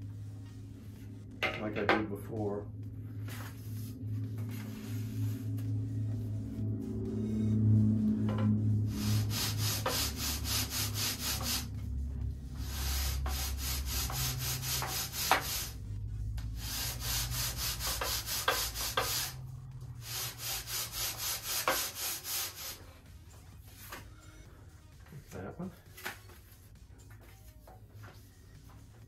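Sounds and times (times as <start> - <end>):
sanding bar rubbing on wood: 8.6 - 22.9.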